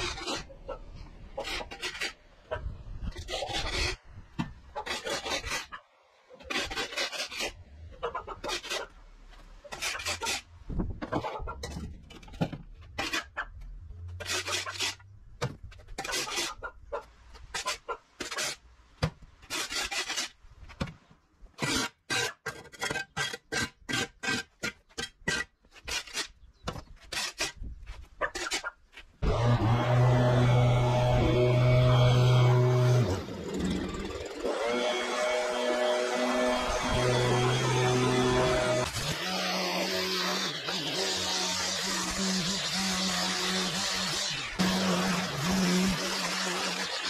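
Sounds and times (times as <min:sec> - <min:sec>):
shovel scraping concrete: 0:01.4 - 0:02.2, 0:04.8 - 0:05.8, 0:06.4 - 0:07.7, 0:08.4 - 0:08.9, 0:09.6 - 0:10.5, 0:12.1 - 0:13.4, 0:14.2 - 0:15.0, 0:15.8 - 0:16.6, 0:17.5 - 0:18.6, 0:19.4 - 0:20.8, 0:21.6 - 0:47.0.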